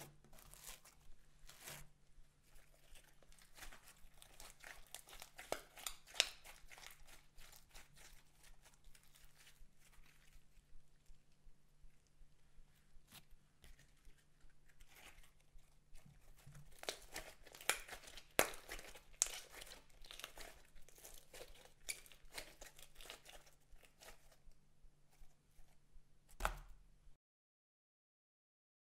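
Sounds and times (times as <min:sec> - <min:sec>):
slime squished by hand: 0:02.5 - 0:10.7, 0:13.1 - 0:24.4.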